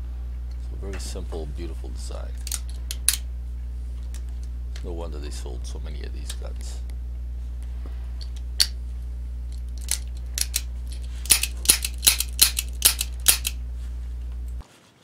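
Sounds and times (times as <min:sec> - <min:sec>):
steady low hum: 0:00.0 - 0:14.6
revolver action clicks: 0:02.4 - 0:03.3, 0:09.5 - 0:13.6.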